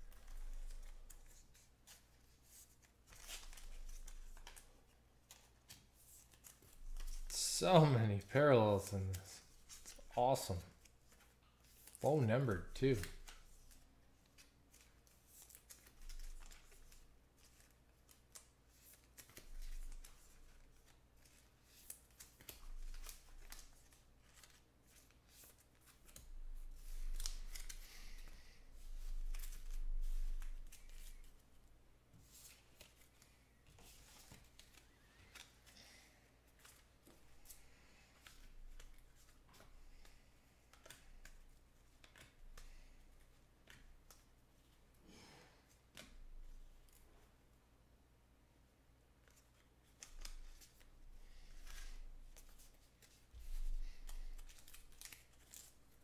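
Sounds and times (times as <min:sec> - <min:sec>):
cards clicking and rustling: 0:00.0 - 0:07.4, 0:08.7 - 0:31.5, 0:32.2 - 0:35.8, 0:36.4 - 0:44.3, 0:49.2 - 0:56.0.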